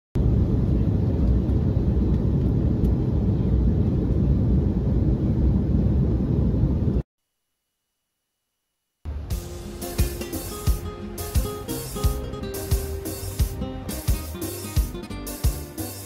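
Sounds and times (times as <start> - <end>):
airliner cabin engine rush: 0.2 - 7.0.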